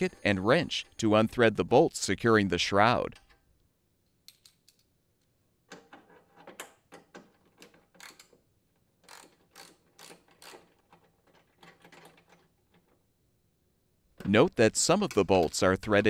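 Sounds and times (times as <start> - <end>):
ratchet wrench clicking: 8.0 - 8.3, 9.0 - 11.1.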